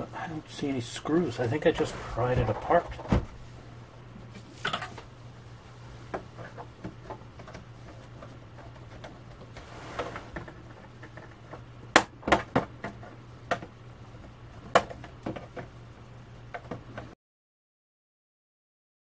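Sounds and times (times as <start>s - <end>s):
steady low hum: 0.0s - 17.2s
scraping rustle: 1.3s - 3.6s, 7.6s - 10.8s.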